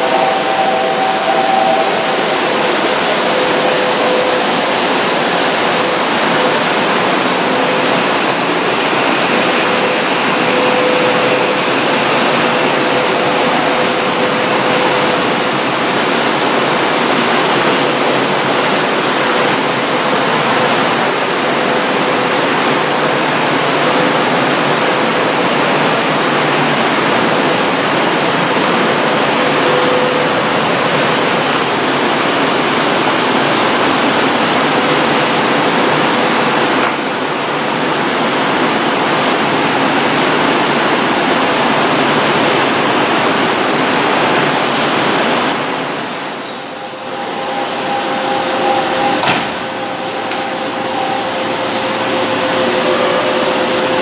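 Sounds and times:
faint tone: 0.0 - 4.8
train wheels and air rushing: 0.0 - 54.0.

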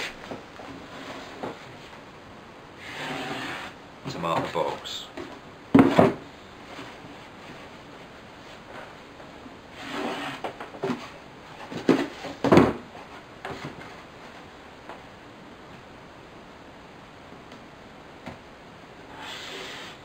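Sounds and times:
cardboard sliding scrape: 0.0 - 1.9, 2.8 - 3.8, 9.7 - 12.4.

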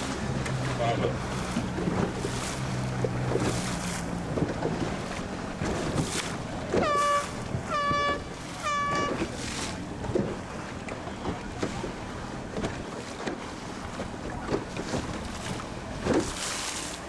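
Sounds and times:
water noise: 0.0 - 17.0
wind: 0.0 - 17.0
short horn blasts: 6.8 - 9.3.

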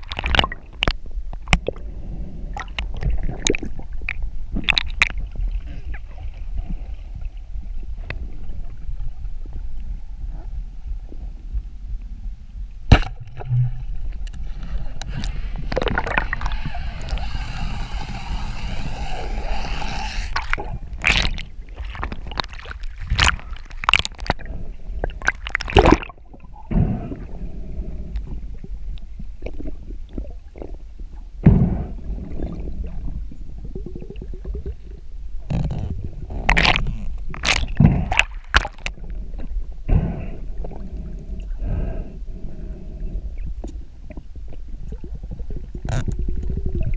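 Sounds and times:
sharp crack: 12.9 - 13.6
water rushing underwater: 12.9 - 30.8.

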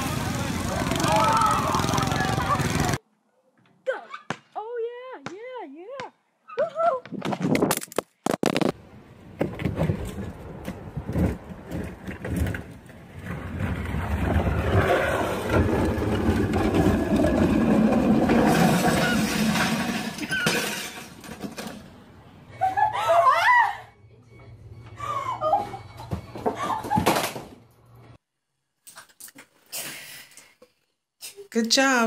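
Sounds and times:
sharp clatter: 13.6 - 22.0.

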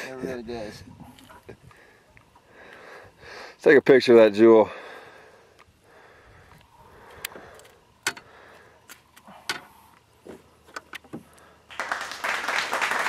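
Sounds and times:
applause: 11.7 - 13.0.

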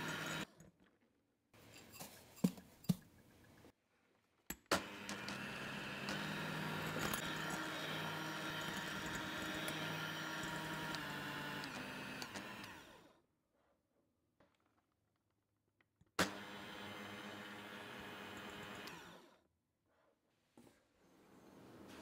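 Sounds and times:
electric hand mixer running: 0.0 - 0.5, 4.8 - 13.2, 16.2 - 19.4.

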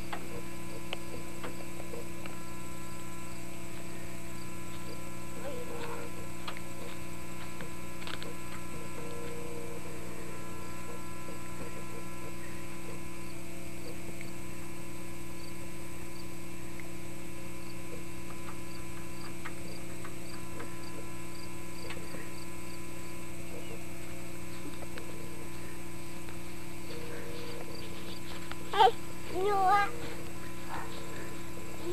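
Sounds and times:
electrical hum: 0.0 - 31.9
faint ticks: 5.8 - 9.4.

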